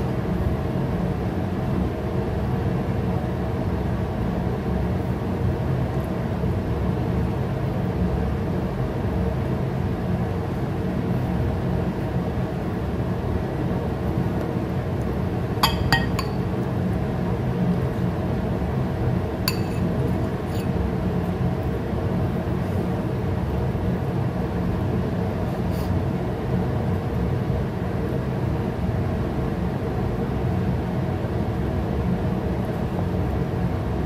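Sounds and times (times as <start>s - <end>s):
fork clinking against ceramic bowl: 15.6s - 16.5s, 19.5s - 19.9s.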